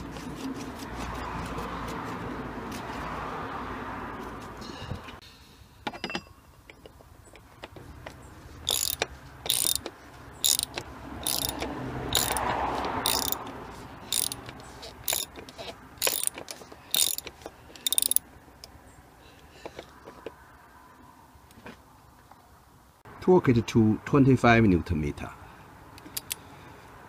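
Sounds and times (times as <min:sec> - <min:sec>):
socket ratchet clicking: 0:08.7 - 0:13.5, 0:14.1 - 0:18.2, 0:26.0 - 0:26.4.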